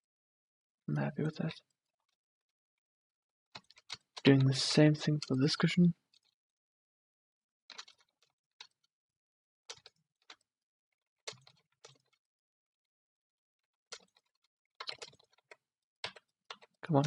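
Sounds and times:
keyboard and mouse clicks: 0:07.7 - 0:08.8, 0:11.3 - 0:12.2, 0:13.9 - 0:17.0.

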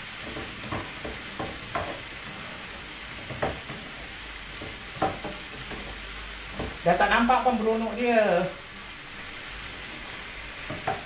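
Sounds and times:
vegetables sizzling in a pan: 0:00.0 - 0:11.0
spatula scraping and knocking pan: 0:00.2 - 0:06.9, 0:09.9 - 0:11.0.

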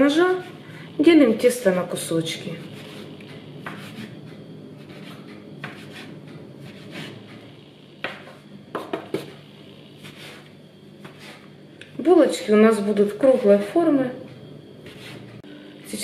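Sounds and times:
steady low hum: 0:00.0 - 0:16.0
dough scraper tapping countertop: 0:08.0 - 0:09.3.

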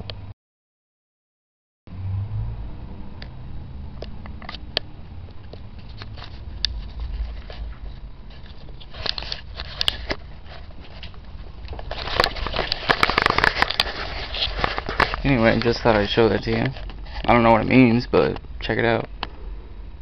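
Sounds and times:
camera handling clicks and rustles: 0:08.4 - 0:15.8.

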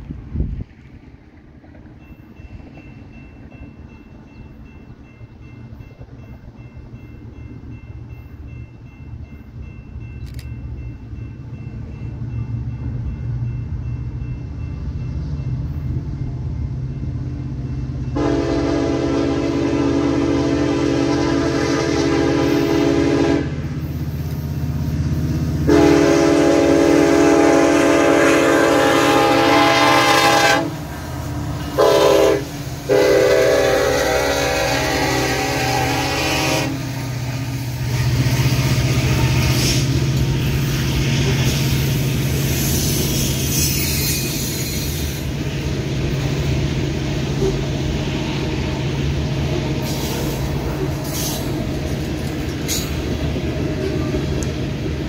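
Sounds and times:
diesel locomotive engines rumbling: 0:00.0 - 0:55.0
locomotive air horn blasts: 0:18.2 - 0:23.7, 0:25.6 - 0:30.9, 0:31.6 - 0:40.5.

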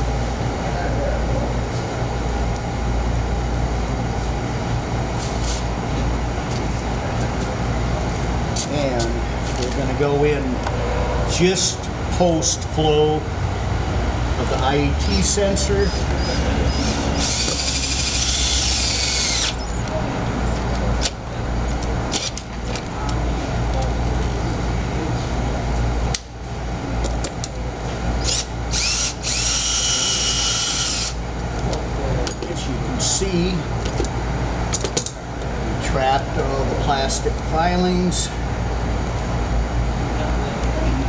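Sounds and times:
low mechanical hum: 0:00.0 - 0:41.0
cordless drill whining: 0:17.2 - 0:19.8, 0:28.2 - 0:31.2.

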